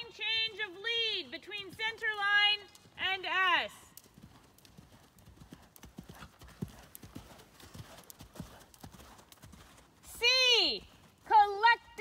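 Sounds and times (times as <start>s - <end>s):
horse hooves thudding on sand: 4.0s - 12.0s.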